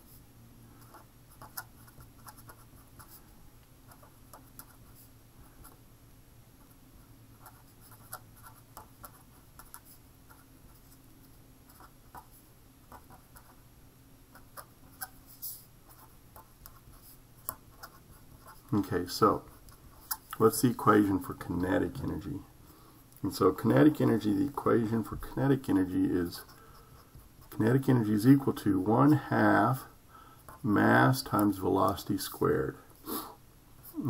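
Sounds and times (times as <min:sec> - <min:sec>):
faint low hum: 0:00.0 - 0:34.0
pen scratching on paper: 0:07.4 - 0:11.0, 0:15.9 - 0:20.2.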